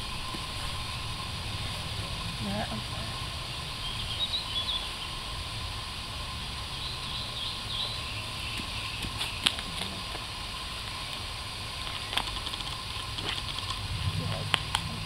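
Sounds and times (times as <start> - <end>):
bird chirping: 0.0 - 5.4, 6.6 - 10.1
low background rumble: 0.0 - 15.0.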